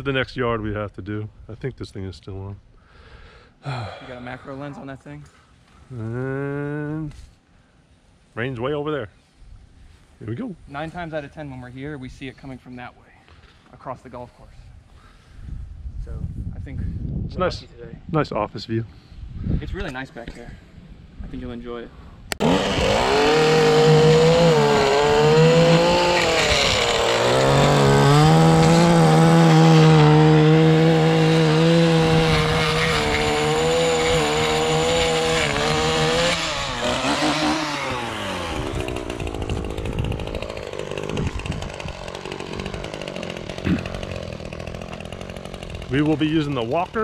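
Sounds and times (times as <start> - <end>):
stick edger cutting turf: 22.3 - 47.0.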